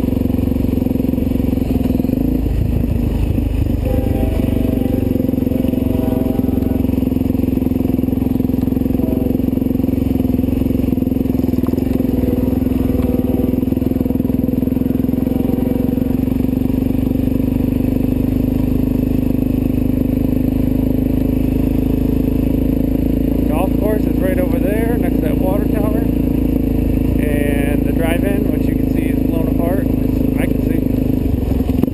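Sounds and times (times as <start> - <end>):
motorcycle engine cruising: 0.0 - 31.9.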